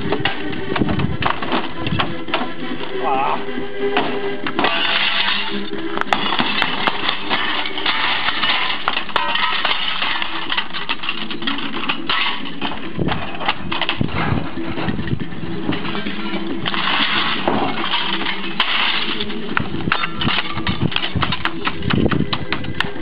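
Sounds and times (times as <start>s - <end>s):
glass shards clinking and breaking: 4.6s - 12.7s, 16.1s - 21.4s.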